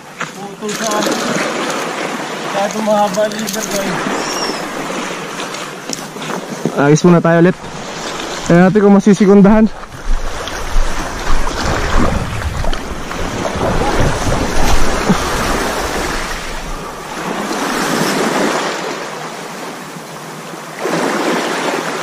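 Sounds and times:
sea waves washing: 0:00.0 - 0:22.0
wind buffeting microphone: 0:06.9 - 0:18.4.

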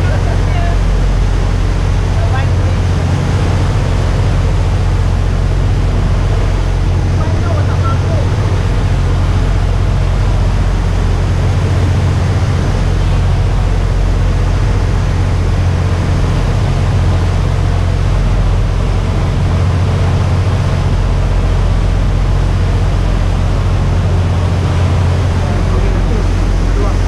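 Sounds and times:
boat engine rumble: 0:00.0 - 0:27.0
rushing water: 0:00.0 - 0:27.0.

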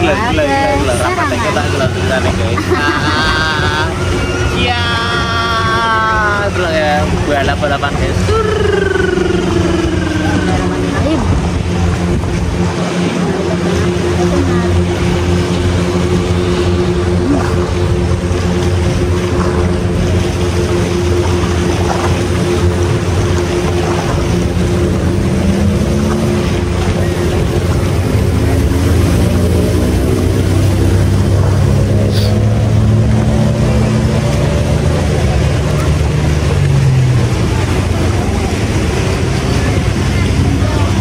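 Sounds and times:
speedboat engines droning: 0:00.0 - 0:41.0.

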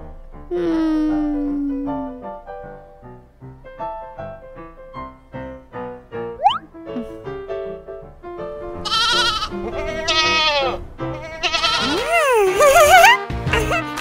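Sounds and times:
gentle piano music: 0:00.0 - 0:13.8
cartoon sheep bleating: 0:08.9 - 0:12.2.

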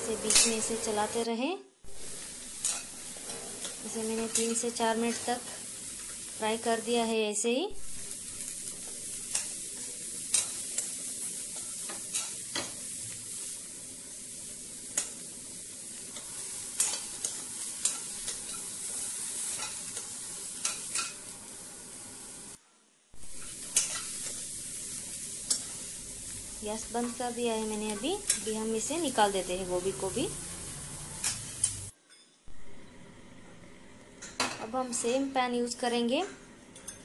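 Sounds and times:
vegetables sizzling in oil: 0:00.0 - 0:22.6, 0:23.2 - 0:31.9
steel spoon scraping pan: 0:02.5 - 0:06.2, 0:16.2 - 0:21.3.

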